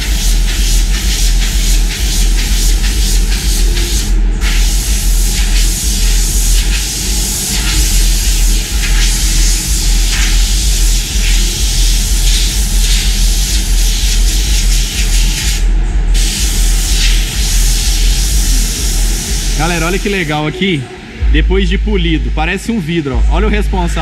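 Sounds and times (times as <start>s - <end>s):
paint spray gun hissing: 0.0s - 20.4s
low rumble: 15.5s - 24.0s.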